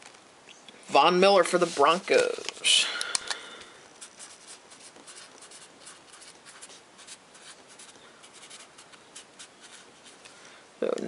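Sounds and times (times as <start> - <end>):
marker scratching on paper: 4.0 - 10.2.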